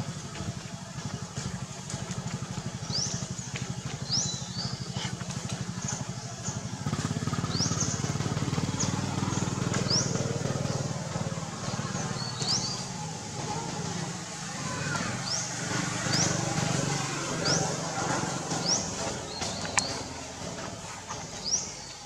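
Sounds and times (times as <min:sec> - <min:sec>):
small engine running: 0:00.0 - 0:22.0.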